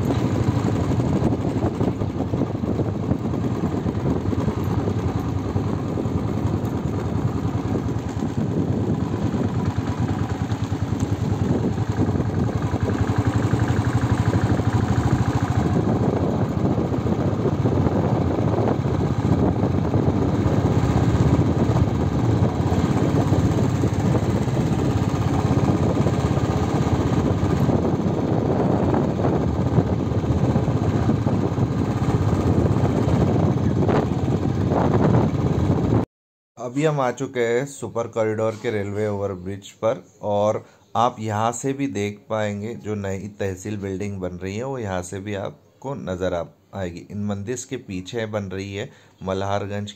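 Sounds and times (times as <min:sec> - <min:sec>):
motorbike engine running: 0:00.0 - 0:36.0
wind: 0:00.0 - 0:36.0.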